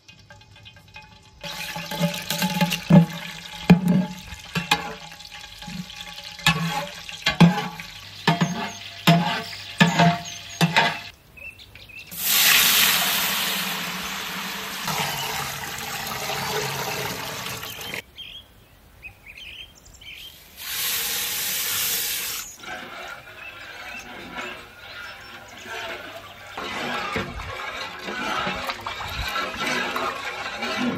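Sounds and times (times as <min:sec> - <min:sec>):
water sloshing in a pot: 0:00.0 - 0:11.1, 0:12.1 - 0:18.0, 0:20.8 - 0:30.9
birds chirping: 0:08.0 - 0:12.2, 0:16.8 - 0:20.4, 0:23.2 - 0:26.8.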